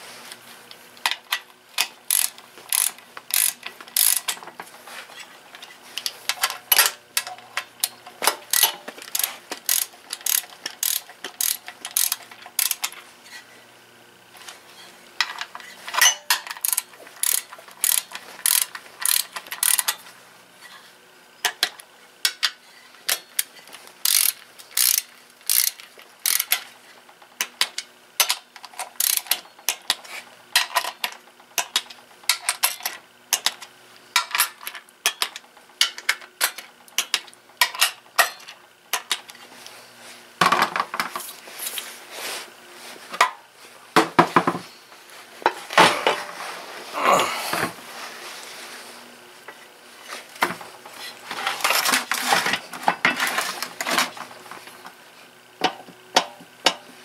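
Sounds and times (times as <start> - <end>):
socket ratchet clicking: 1.8 - 4.4, 8.5 - 12.9, 16.6 - 20.0, 24.0 - 26.6, 29.0 - 29.3.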